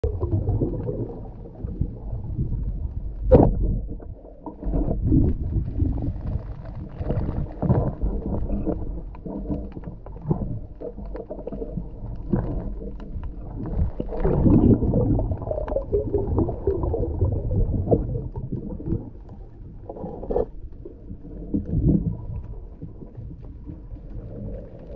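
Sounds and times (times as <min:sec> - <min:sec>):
muffled underwater rumble: 0:00.0 - 0:24.9.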